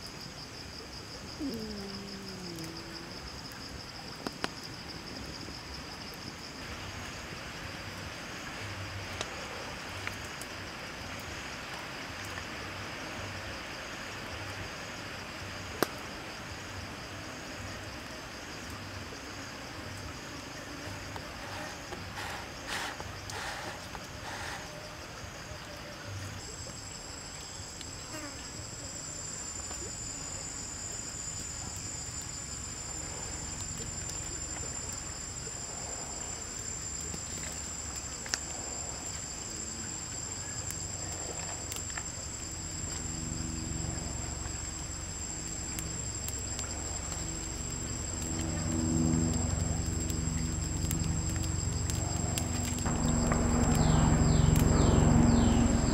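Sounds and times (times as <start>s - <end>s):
insects chirring: 0.0s - 55.9s
low hum: 42.7s - 55.9s.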